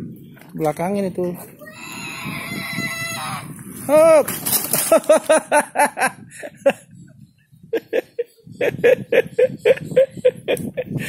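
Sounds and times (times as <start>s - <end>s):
person laughing: 3.9s - 6.9s, 7.7s - 11.0s.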